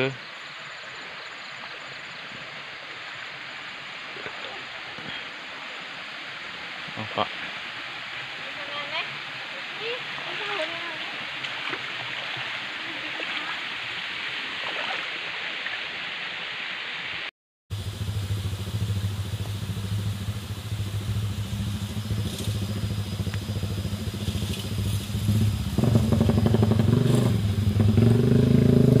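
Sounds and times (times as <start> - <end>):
stream water rushing: 0.0 - 29.0
engine revving: 17.8 - 29.0.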